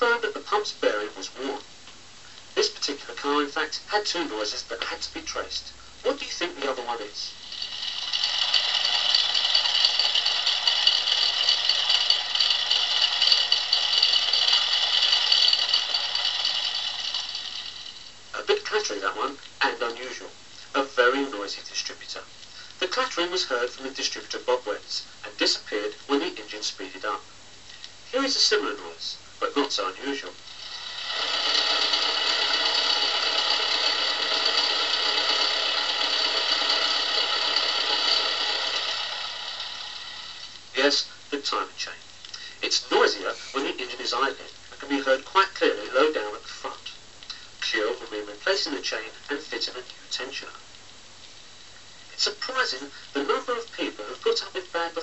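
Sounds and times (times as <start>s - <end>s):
fast metallic clattering: 7.4s - 18.0s, 30.7s - 40.4s
car engine idling with clatter: 8.2s - 17.3s.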